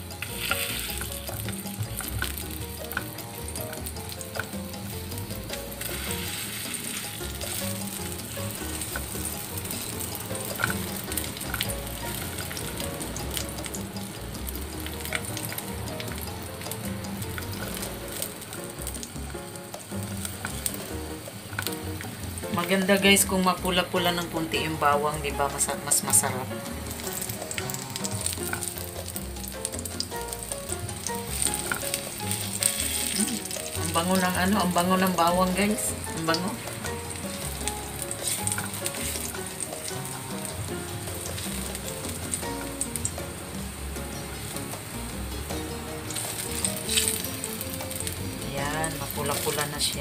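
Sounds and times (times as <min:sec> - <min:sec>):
garlic sizzling in oil: 0:00.0 - 0:50.0
soft background music: 0:00.0 - 0:50.0
spatula tapping and scraping pan: 0:00.2 - 0:04.9, 0:08.2 - 0:12.6, 0:19.2 - 0:22.2.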